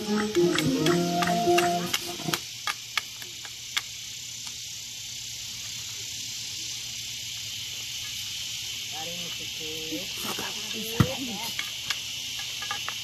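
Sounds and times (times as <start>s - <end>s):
music: 0.0s - 2.4s
insect chorus hissing: 0.0s - 13.0s.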